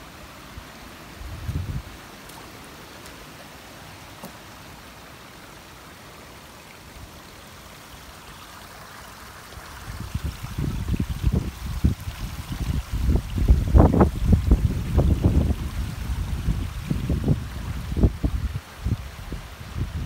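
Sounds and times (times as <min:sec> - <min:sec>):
water trickling: 0:00.0 - 0:20.0
wind buffeting microphone: 0:01.2 - 0:02.0, 0:09.9 - 0:20.0.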